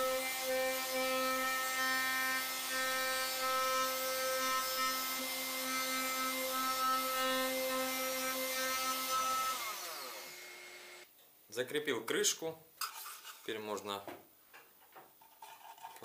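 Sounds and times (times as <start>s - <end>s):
electric router whining: 0.0s - 11.0s.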